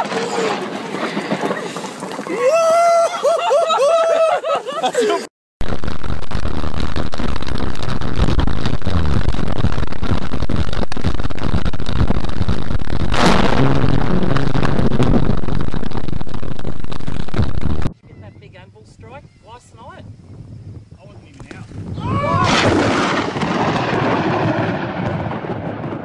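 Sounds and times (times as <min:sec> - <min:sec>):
thunder crack: 0:00.0 - 0:02.6, 0:12.0 - 0:17.9, 0:22.0 - 0:26.0.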